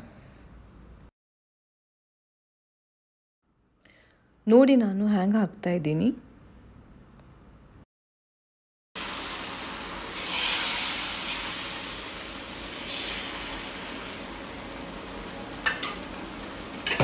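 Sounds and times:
batter sizzling on hot pan: 9.0s - 17.0s.

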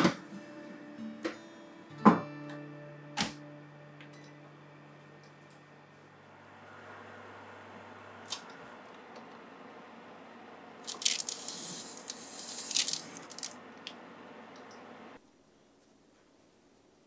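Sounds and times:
oven humming: 2.9s - 15.2s.

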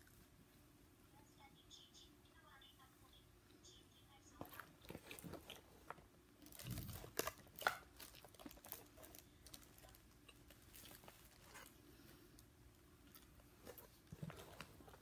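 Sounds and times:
crispy chicken being chewed: 4.8s - 12.4s.

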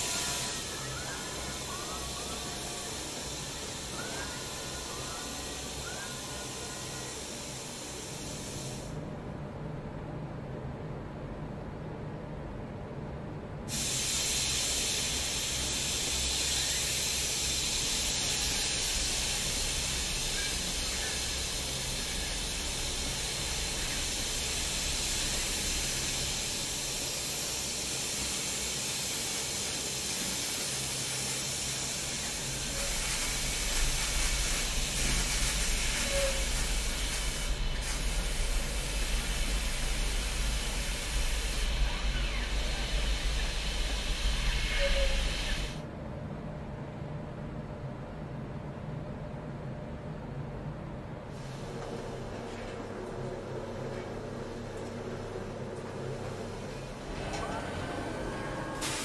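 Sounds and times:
spray guns hissing: 7.2s - 8.9s, 13.7s - 45.8s, 58.8s - 59.0s.

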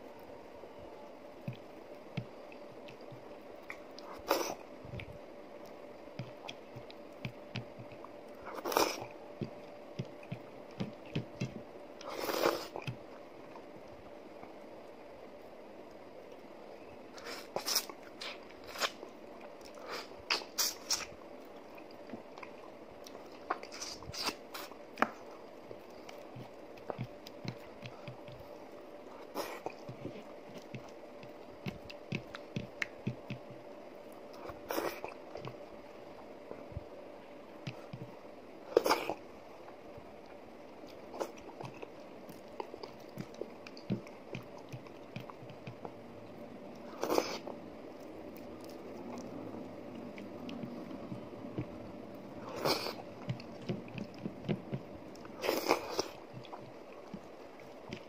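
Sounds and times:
soft chewing: 0.0s - 58.0s
fingers squishing soft food: 17.2s - 36.3s
wet chewing smacks and clicks: 29.2s - 33.6s, 40.8s - 51.9s.

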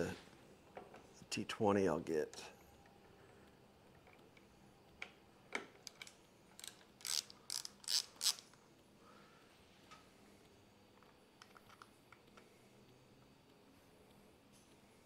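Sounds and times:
screwdriver ratcheting: 5.8s - 8.4s.

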